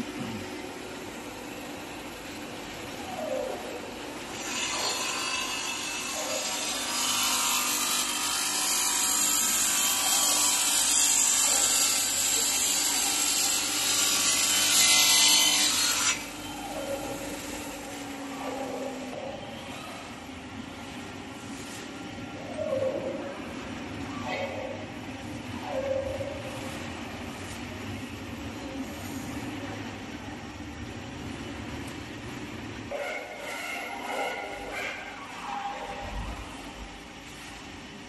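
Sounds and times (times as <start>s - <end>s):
saw blade grinding stone: 4.3s - 17.9s.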